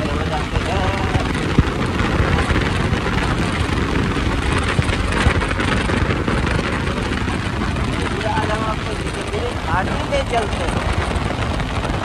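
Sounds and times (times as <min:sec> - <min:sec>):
motorcycle engine: 0:00.0 - 0:12.0
wind buffeting microphone: 0:00.0 - 0:12.0.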